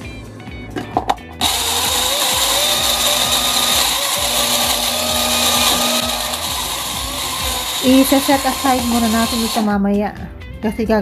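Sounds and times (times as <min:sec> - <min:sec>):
blender whining: 0:01.4 - 0:09.7.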